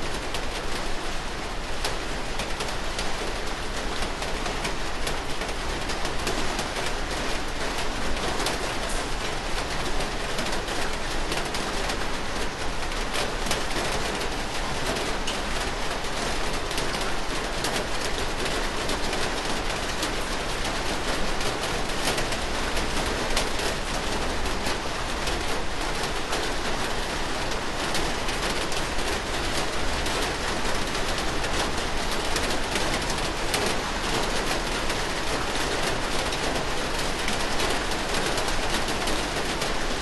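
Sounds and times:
steady rain: 0.0 - 40.0.

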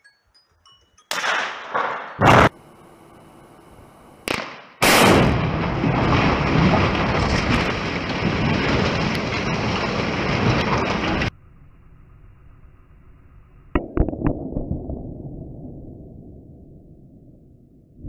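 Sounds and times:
explosive blasts: 1.2 - 3.2, 3.8 - 11.3
rumble of collapsing structure: 5.0 - 18.0.

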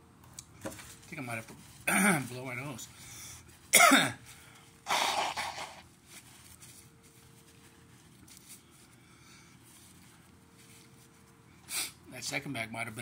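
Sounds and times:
man blowing nose: 4.9 - 5.8, 11.7 - 12.0.

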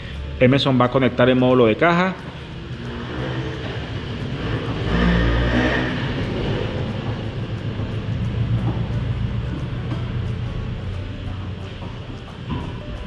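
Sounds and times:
car engine running: 2.3 - 11.3.

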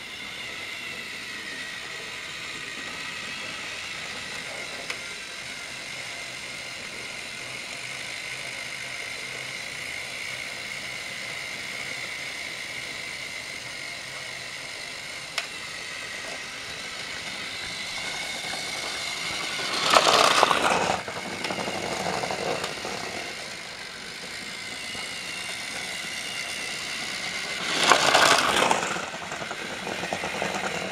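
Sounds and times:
toy train motor whining: 0.0 - 30.9
toy train clattering: 13.5 - 30.9.

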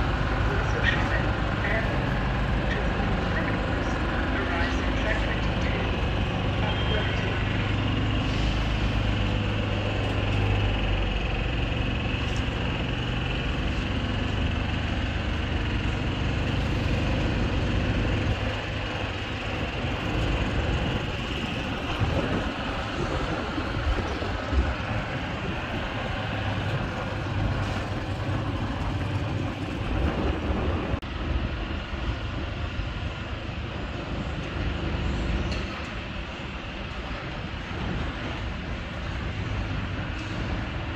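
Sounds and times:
train rumbling on tracks: 0.0 - 40.9.

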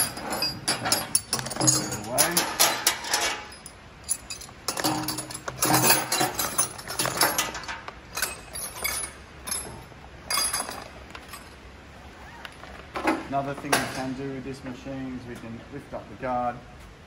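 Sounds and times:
metal tools clinking in plastic bag: 0.0 - 11.6.

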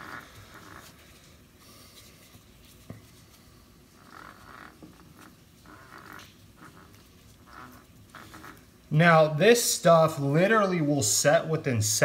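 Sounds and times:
paper towel rubbing: 0.0 - 8.9.

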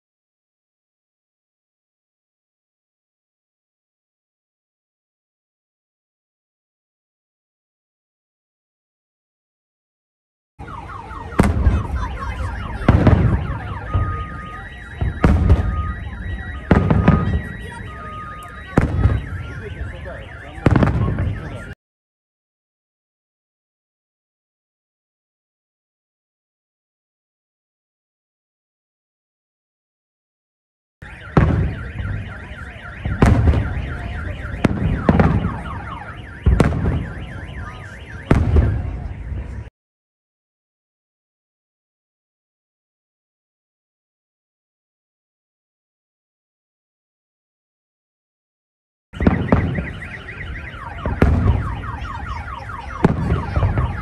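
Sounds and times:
car alarm wailing and beeping: 10.6 - 21.8, 31.0 - 39.7, 49.2 - 54.0
fireworks booming: 10.7 - 21.8, 31.1 - 39.7, 49.2 - 54.0.

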